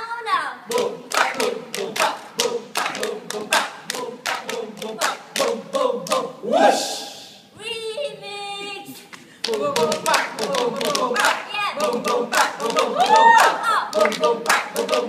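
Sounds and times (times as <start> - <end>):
group chanting a cheer: 0.3 - 7.6, 9.4 - 15.0
rhythmic clapping: 0.7 - 6.4, 9.1 - 15.0.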